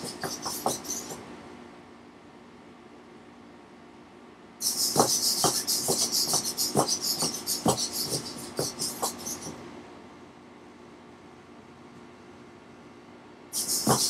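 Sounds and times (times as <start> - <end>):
robot feet tapping hardwood floor: 0.0 - 1.2, 4.9 - 9.5.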